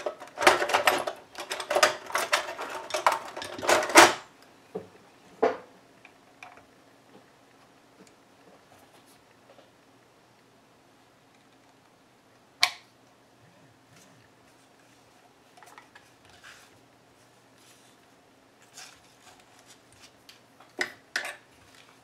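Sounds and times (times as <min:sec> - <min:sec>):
faint clicks and scrapes: 0:13.9 - 0:22.0.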